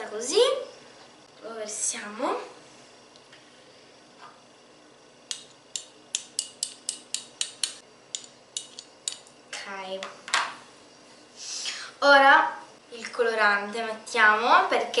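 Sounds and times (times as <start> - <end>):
metal spoons clinking: 5.8 - 9.3.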